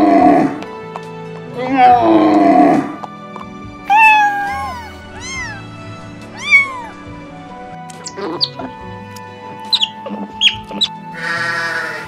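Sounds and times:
background music: 0.0 - 12.0
kittens meowing: 3.9 - 7.4
low falling animal call: 6.3 - 7.1.

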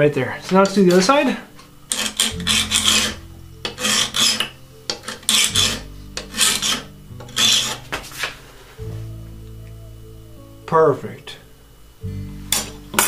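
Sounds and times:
file rasping on steel: 1.9 - 8.3.

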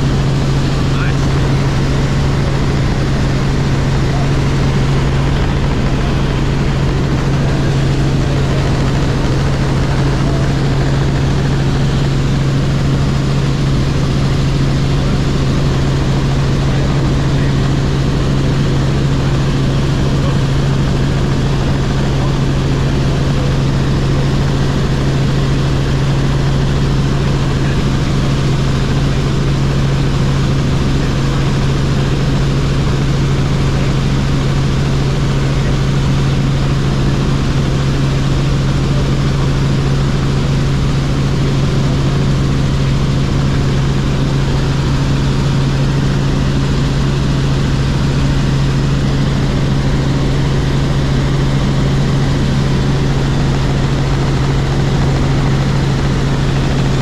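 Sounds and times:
helicopter engine and rotors drone: 0.0 - 57.0.

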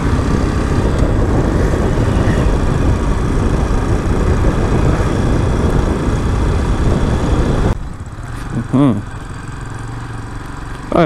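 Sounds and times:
wind noise on microphone: 0.0 - 7.8
motorcycle engine running: 0.0 - 11.0.

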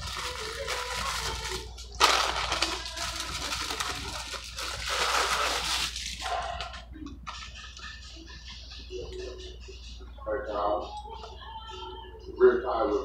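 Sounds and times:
paper wrapper crinkling: 0.0 - 7.4.

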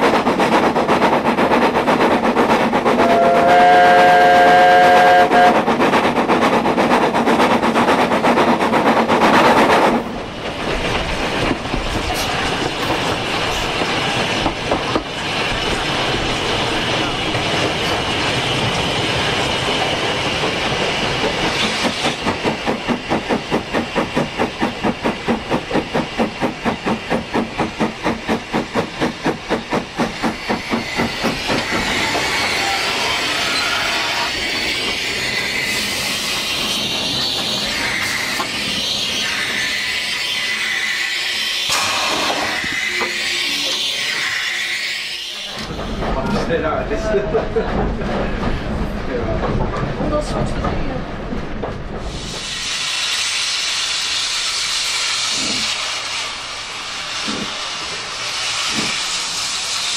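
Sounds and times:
steam locomotive exhaust beats: 0.0 - 33.4, 51.5 - 59.9
locomotive running noise: 0.0 - 52.4, 55.2 - 59.9
steam hissing: 10.8 - 46.1, 52.0 - 59.9.

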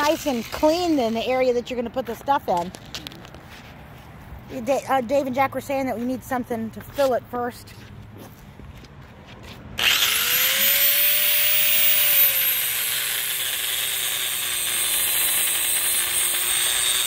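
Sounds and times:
angle grinder grinding: 0.0 - 1.6, 9.8 - 17.0.

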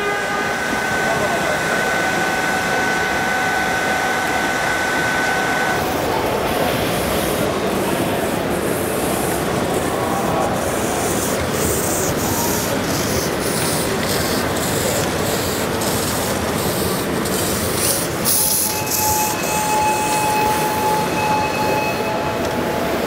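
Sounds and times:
steam whistle: 0.0 - 5.9, 18.3 - 23.0
model steam locomotive running: 0.0 - 23.0.

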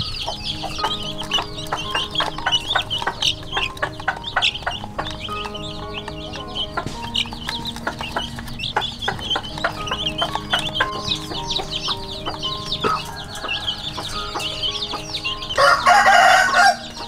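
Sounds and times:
chicks peeping: 0.0 - 17.0
beaks pecking plastic feeder: 0.1 - 17.0.

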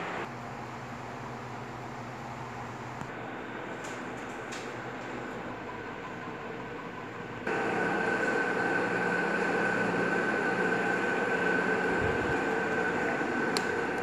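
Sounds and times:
ceiling fans whirring: 0.0 - 14.0
high whine: 7.4 - 14.0.

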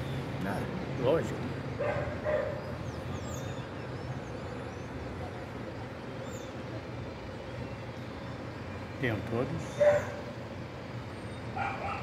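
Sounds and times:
distant traffic hum: 0.0 - 12.0
dog barking: 1.8 - 2.6, 9.8 - 10.2, 11.6 - 12.0.

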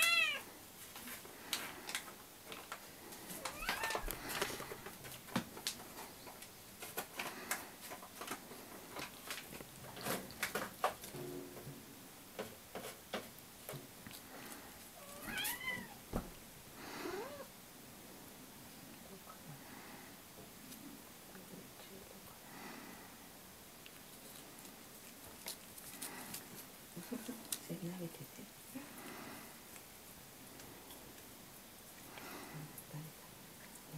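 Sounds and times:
cat meowing: 0.0 - 0.5, 3.4 - 4.1, 15.0 - 16.0.

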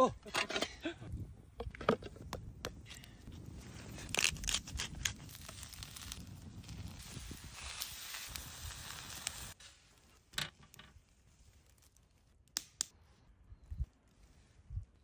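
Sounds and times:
burger patty sizzling: 5.2 - 9.6.

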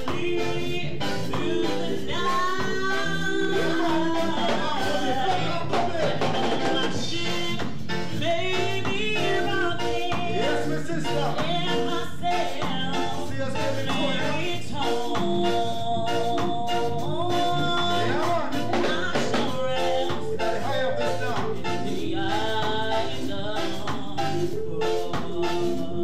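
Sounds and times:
woman singing into microphone: 0.0 - 10.7, 11.4 - 13.2, 13.9 - 20.4, 21.8 - 26.0
upbeat band music: 0.0 - 26.0.

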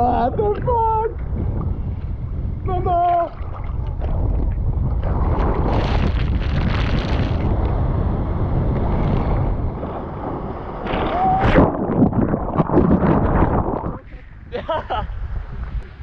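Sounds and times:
wind noise on microphone: 0.0 - 16.0.

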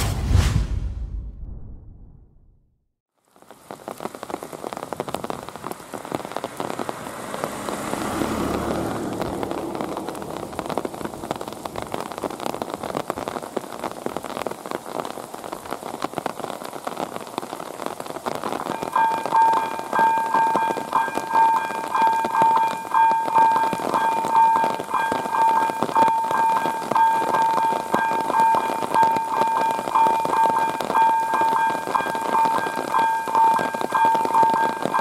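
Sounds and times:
low rumble: 0.0 - 2.7
rain pattering: 3.1 - 35.0.

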